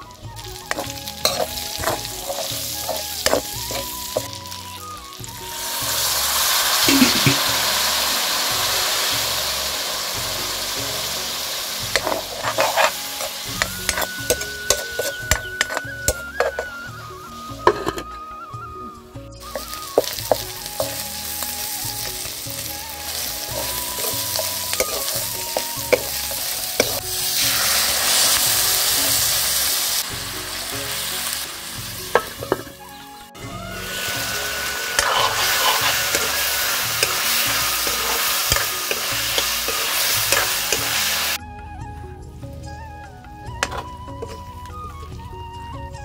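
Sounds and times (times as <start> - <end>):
curry sizzling in a pan: 0.0 - 18.6, 19.2 - 41.4
metal spatula scraping pan: 0.6 - 4.3, 11.9 - 16.8, 17.6 - 18.2, 19.5 - 21.0, 23.1 - 28.3, 34.0 - 41.4
water pouring: 5.4 - 16.8.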